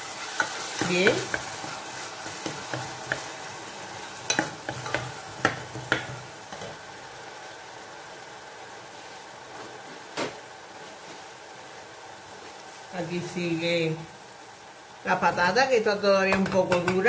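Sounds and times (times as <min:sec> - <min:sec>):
vegetables sizzling in oil: 0:00.0 - 0:17.0
plastic spoon stirring and tapping pan: 0:00.3 - 0:03.4, 0:04.3 - 0:06.7, 0:16.3 - 0:17.0.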